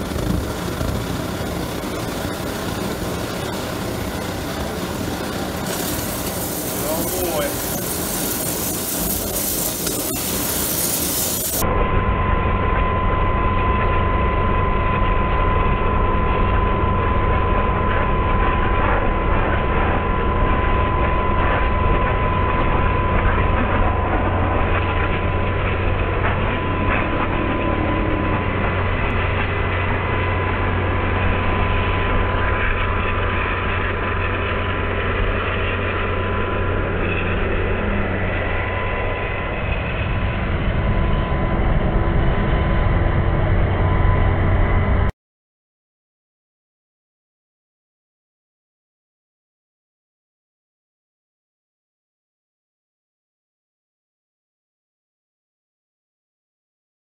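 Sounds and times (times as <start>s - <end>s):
burner and steam jet rushing: 0.0s - 11.6s
high whine: 0.0s - 45.1s
low hum: 0.0s - 45.1s.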